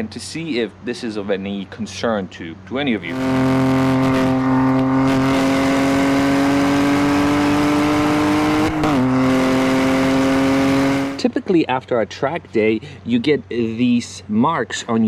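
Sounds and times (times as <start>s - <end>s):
car engine accelerating: 3.0s - 11.2s
gear upshift: 3.0s - 11.2s.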